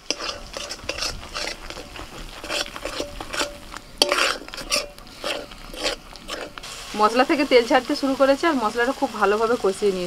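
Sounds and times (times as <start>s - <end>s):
spatula scraping metal pan: 0.0s - 6.7s.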